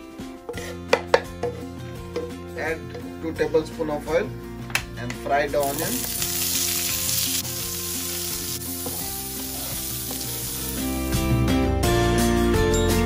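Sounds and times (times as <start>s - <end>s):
background music: 0.0s - 13.0s
onions sizzling in hot oil: 5.6s - 11.1s.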